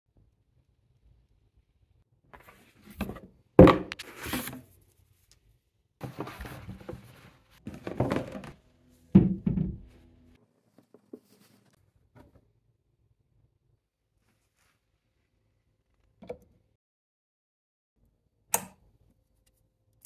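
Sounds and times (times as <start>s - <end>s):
rustling and scraping of box: 6.0s - 8.6s
knock: 9.2s - 9.9s.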